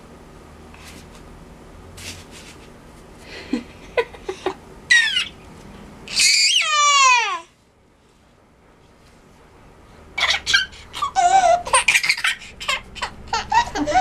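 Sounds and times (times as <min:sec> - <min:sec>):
baby squealing: 0:04.9 - 0:05.4, 0:06.1 - 0:07.5, 0:10.2 - 0:14.0.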